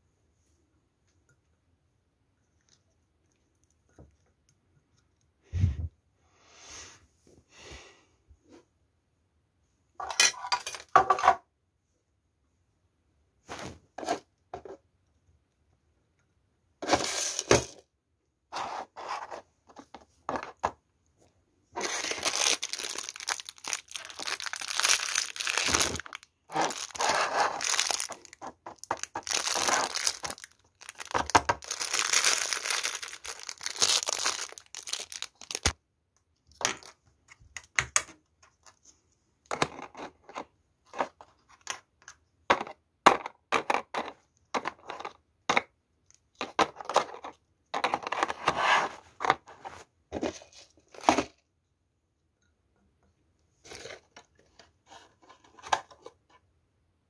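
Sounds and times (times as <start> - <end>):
plastic crinkling and crackling: 21.8 - 35.8.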